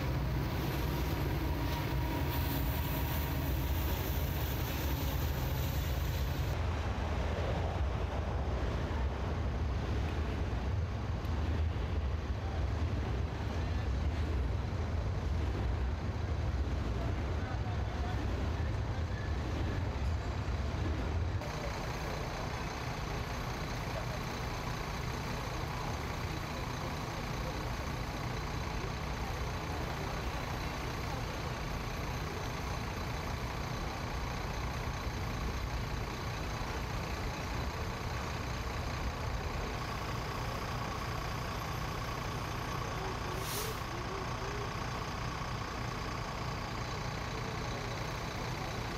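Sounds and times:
diesel engines running: 0.0 - 48.9
short hiss: 43.4 - 44.0.

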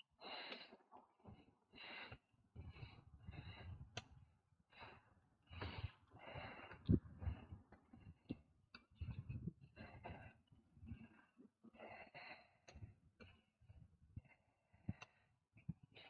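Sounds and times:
cyclist breathing hard: 0.2 - 4.1, 4.7 - 13.5.

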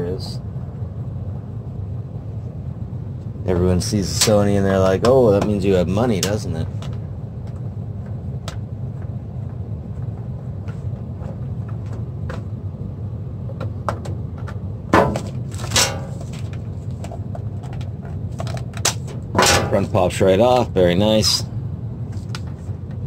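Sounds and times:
steady low hum: 0.0 - 23.0
loud knocks and rustles: 13.6 - 19.9.

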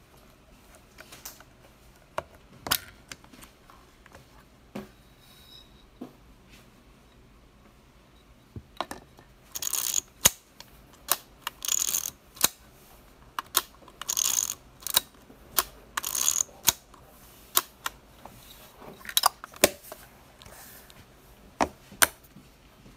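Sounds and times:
film advance lever ratcheting: 9.5 - 10.4, 11.0 - 12.6, 13.4 - 16.8.

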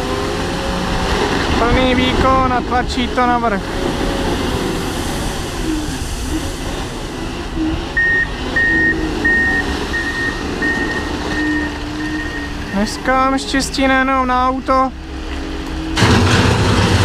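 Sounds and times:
diesel engine working hard: 0.0 - 17.0
reversing alarm beeping: 7.5 - 13.2.

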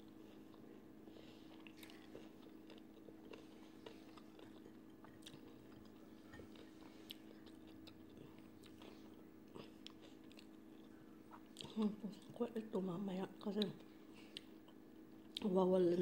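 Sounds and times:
chewing fried chicken: 0.0 - 16.0
steady low hum: 0.0 - 16.0.

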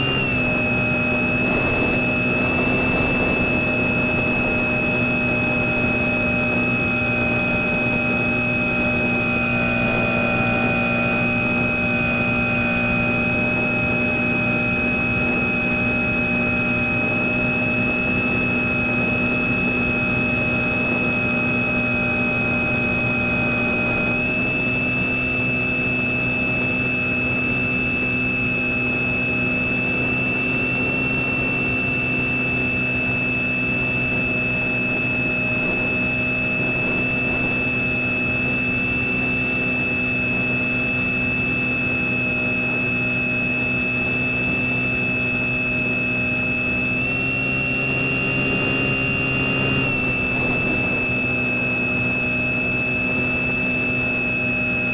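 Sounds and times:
air noise: 0.0 - 6.8
electric motor and propeller whine: 0.0 - 54.9.

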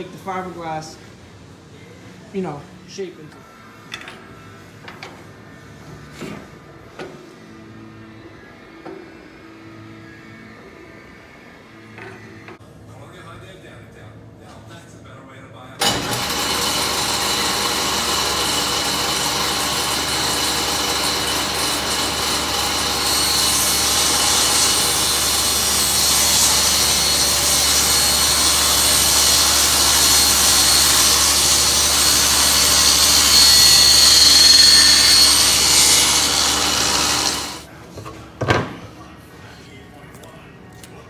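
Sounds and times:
table saw ripping a wooden board: 15.8 - 37.6.

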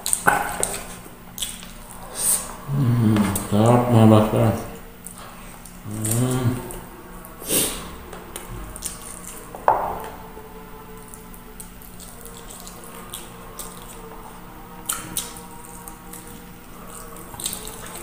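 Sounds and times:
wet chewing and lip smacks: 0.0 - 2.0, 14.8 - 18.0.

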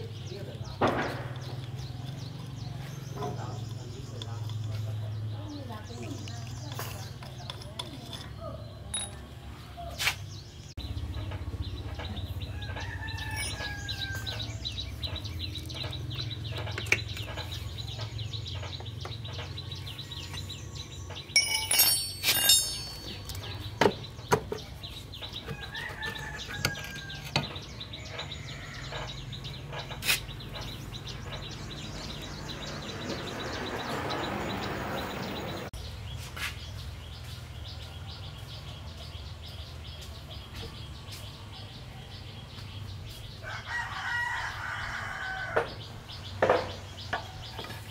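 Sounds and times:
sharp clinks: 8.8 - 9.3, 13.2 - 14.0, 21.3 - 23.6.

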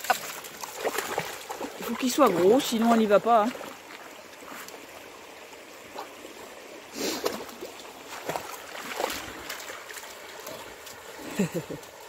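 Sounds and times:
dog splashing through water: 0.0 - 4.8, 7.0 - 11.3
shallow river running: 0.0 - 12.0.

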